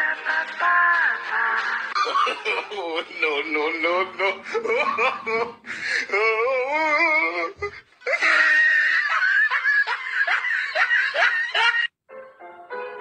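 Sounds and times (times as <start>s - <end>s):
background music: 0.0s - 6.0s, 11.0s - 13.0s
person giggling: 1.9s - 11.9s
wavering drawn-out vocal sound: 4.0s - 8.4s.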